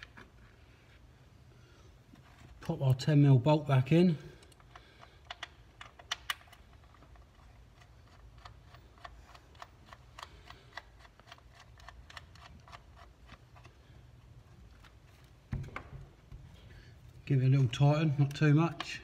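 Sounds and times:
small metallic clicks: 0:04.4 - 0:13.8.

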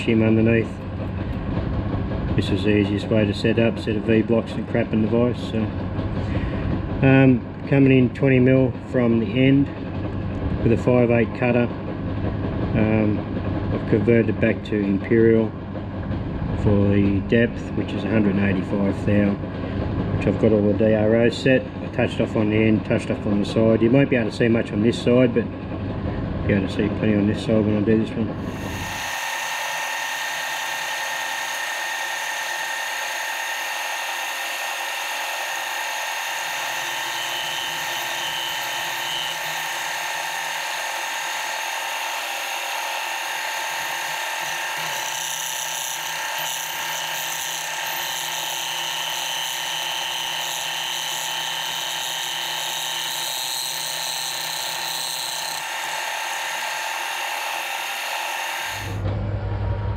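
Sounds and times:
milling machine whine: 0:25.0 - 0:59.9.

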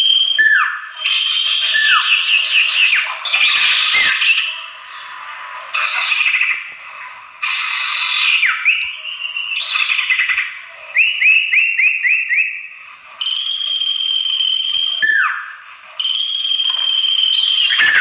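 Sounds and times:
bird upswept whistled notes: 0:00.0 - 0:06.7, 0:07.4 - 0:18.0
bird long level whistles: 0:00.0 - 0:06.8, 0:07.4 - 0:18.0
bird buzzy chattering: 0:01.0 - 0:06.8, 0:07.4 - 0:12.7, 0:17.3 - 0:18.0.

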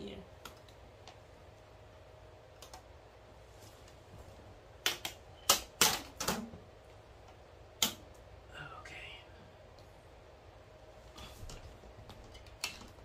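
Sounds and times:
sharp snaps and cracks of panel: 0:04.8 - 0:06.6, 0:07.2 - 0:08.2, 0:12.1 - 0:13.0.

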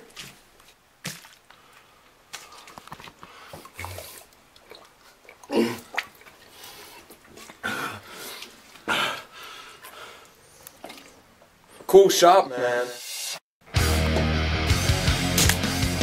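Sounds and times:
water sloshing in bottle: 0:00.0 - 0:08.9, 0:09.7 - 0:11.9
person gulping water: 0:01.0 - 0:11.3.

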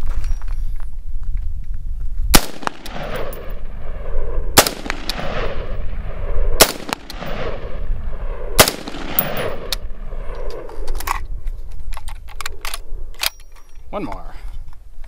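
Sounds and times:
rifle shots with rolling echo: 0:02.3 - 0:10.9.

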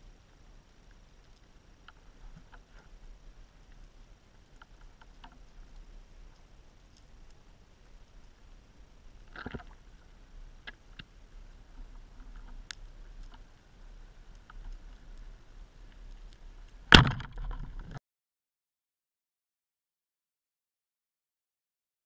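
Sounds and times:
faint clicks: 0:00.0 - 0:18.0
speargun firing crack underwater: 0:16.9 - 0:17.8.

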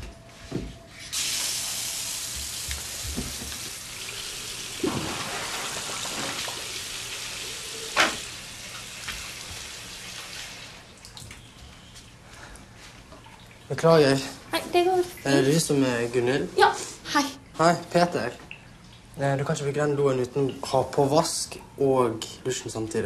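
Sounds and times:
toilet flushing: 0:01.1 - 0:11.0.

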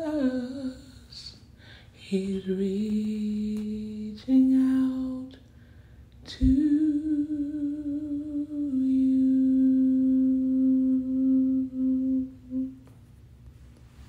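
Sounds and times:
woman humming a held note: 0:06.3 - 0:12.9.

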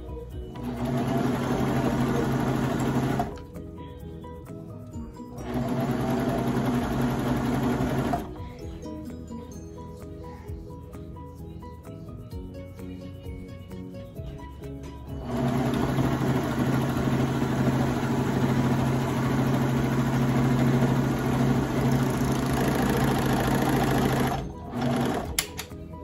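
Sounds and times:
serger sewing machine running: 0:00.6 - 0:03.4, 0:05.4 - 0:08.3, 0:15.2 - 0:25.5.

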